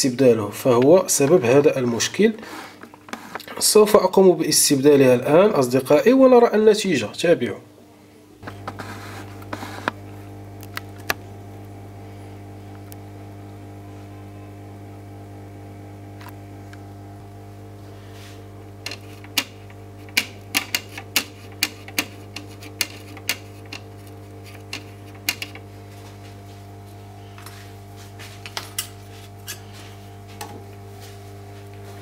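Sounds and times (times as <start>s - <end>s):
electrical hum: 0.0s - 32.0s
brush tapping on circuit board: 18.9s - 25.6s.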